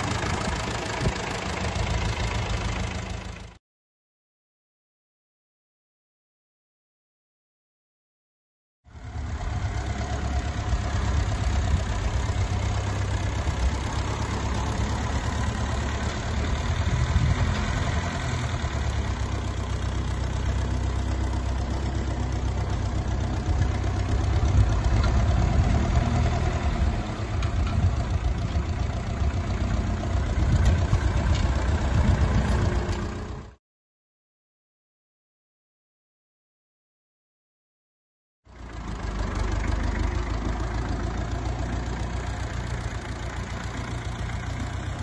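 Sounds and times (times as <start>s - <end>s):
tractor diesel engine running: 0.0s - 3.6s, 8.9s - 33.6s, 38.5s - 45.0s.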